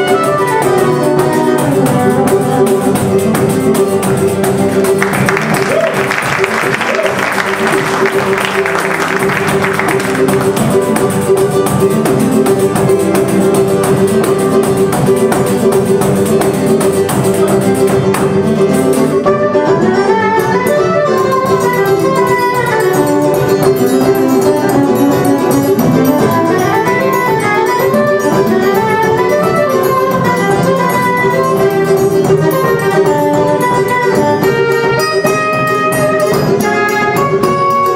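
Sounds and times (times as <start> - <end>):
soprano saxophone melody: 0.0 - 3.8, 19.1 - 37.9
acoustic guitar: 0.0 - 37.9
hand percussion: 0.0 - 37.9
small guitar strumming: 0.0 - 37.9.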